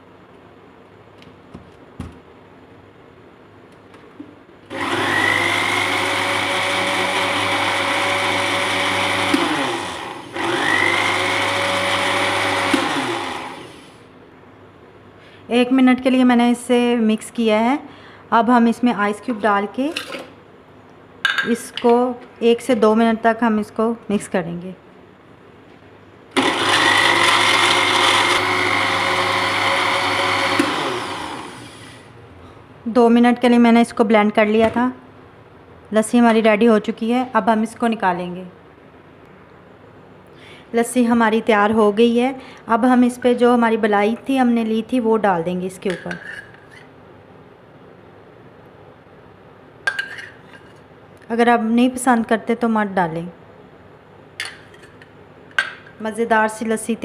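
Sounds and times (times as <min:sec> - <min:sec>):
blender motor whining: 0:04.7 - 0:14.0, 0:26.3 - 0:32.1.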